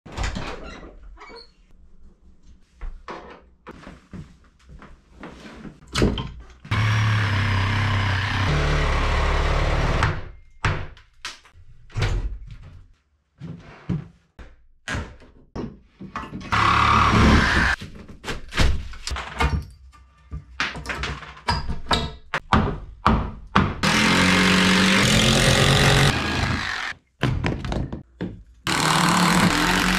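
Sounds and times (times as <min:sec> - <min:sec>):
power tool running: 0:06.7 - 0:10.1, 0:16.5 - 0:17.8, 0:23.8 - 0:26.9, 0:28.7 - 0:29.9.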